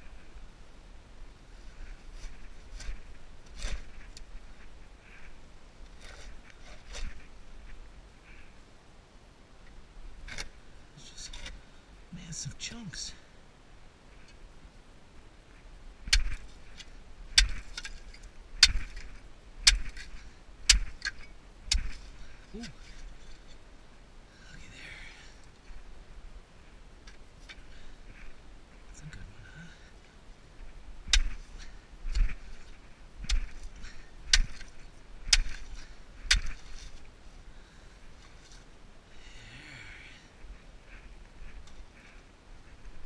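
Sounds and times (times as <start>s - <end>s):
tool striking sharp knocks: 19.7s - 20.0s, 20.7s - 21.1s, 34.3s - 34.6s.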